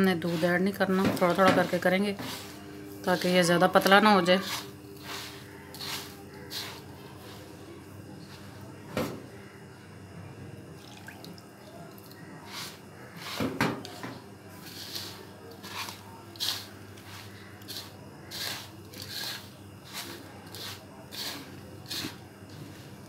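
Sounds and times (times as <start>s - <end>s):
hand mixing gritty mixture: 0.0s - 8.6s, 12.2s - 13.6s, 14.6s - 23.0s
milk pouring: 10.8s - 12.2s.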